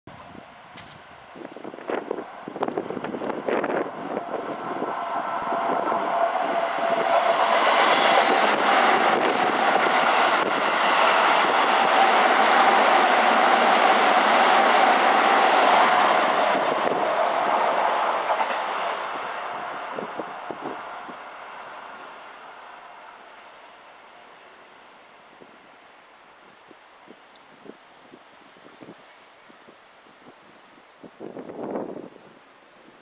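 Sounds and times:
steady train whine: 0.1 - 28.2
electric train running noise: 1.4 - 24.4.

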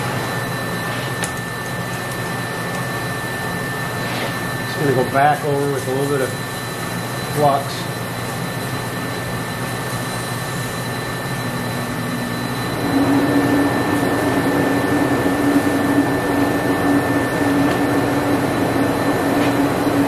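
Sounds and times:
rushing mechanical noise: 9.4 - 20.0.

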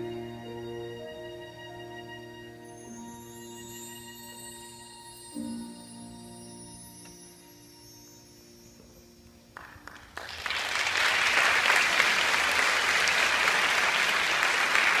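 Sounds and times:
audience applause: 9.6 - 15.0.

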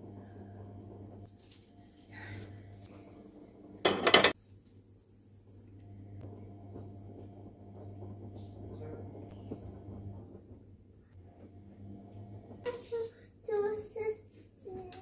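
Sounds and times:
low steady hum: 0.0 - 13.9
bowl clattering on stone countertop: 3.8 - 4.4.

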